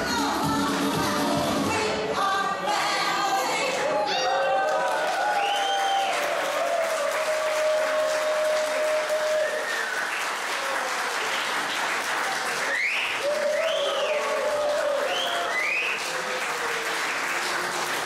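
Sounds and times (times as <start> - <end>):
voices cheering: 3.8 - 11.5, 12.1 - 18.0
audience applauding: 4.2 - 18.0.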